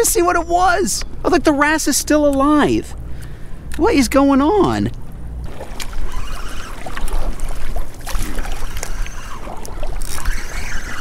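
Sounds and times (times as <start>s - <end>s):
waves lapping against kayak hull: 4.6s - 11.0s
wind on microphone: 5.3s - 11.0s.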